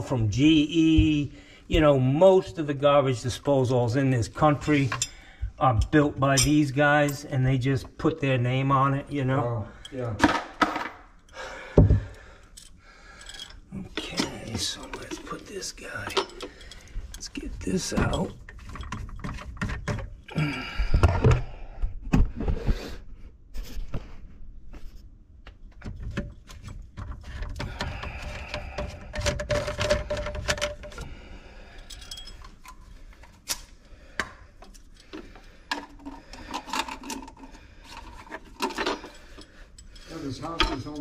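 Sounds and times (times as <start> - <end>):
knocks clunks and rattles of parts: 10.1 - 11.1, 11.7 - 22.6, 25.5 - 31.2, 34.2 - 41.0.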